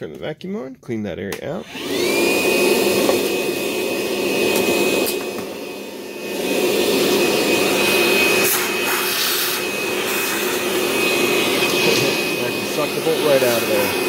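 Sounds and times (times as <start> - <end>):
vacuum whining: 1.6 - 14.0.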